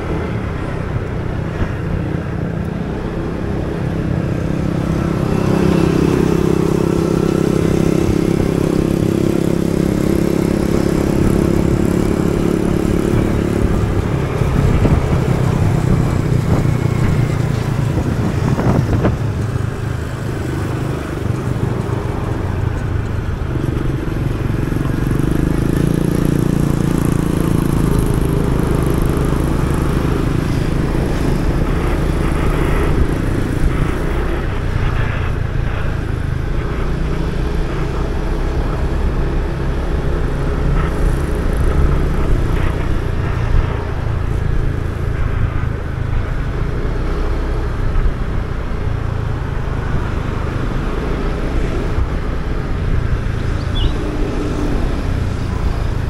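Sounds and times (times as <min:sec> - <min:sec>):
wind and road noise: 0:00.0 - 0:56.0
motorbike engine running: 0:51.8 - 0:56.0.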